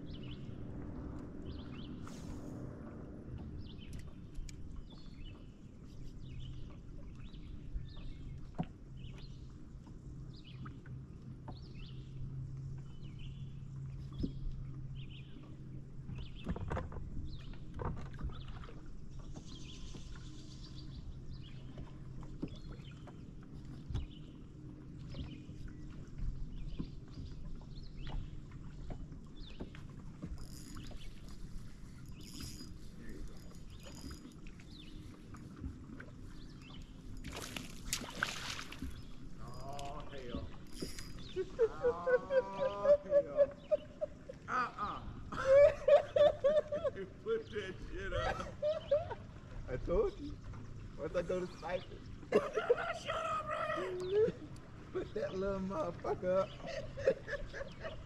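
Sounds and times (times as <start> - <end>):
electric trolling motor humming: 19.2 - 41.6.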